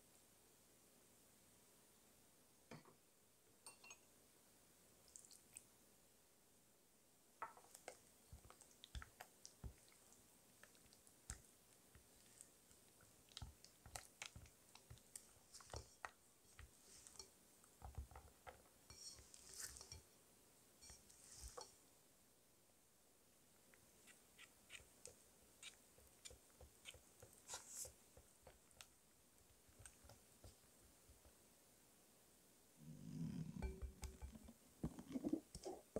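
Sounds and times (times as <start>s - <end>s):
spatula stirring in glass bowl: 7.5s - 20.2s, 20.8s - 21.8s, 33.6s - 35.9s
whisk stirring batter in bowl: 12.8s - 20.1s.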